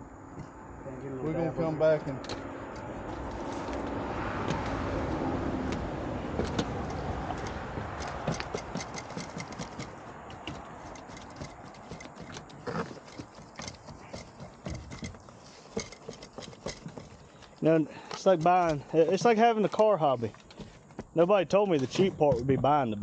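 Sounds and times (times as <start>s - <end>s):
boots on corrugated metal roof: 2.4s - 22.8s.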